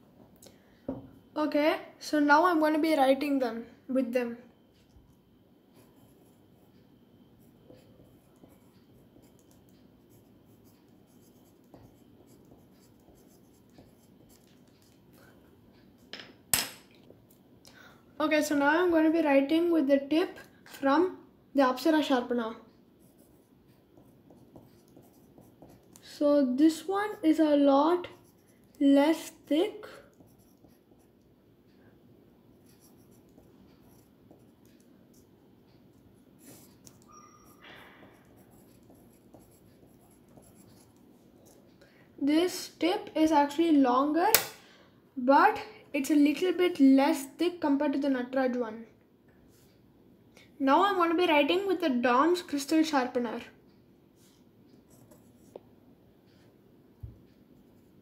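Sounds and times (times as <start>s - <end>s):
pencil scratching on paper: 7.4s - 15.1s, 23.0s - 31.3s, 32.6s - 35.4s, 36.0s - 41.6s.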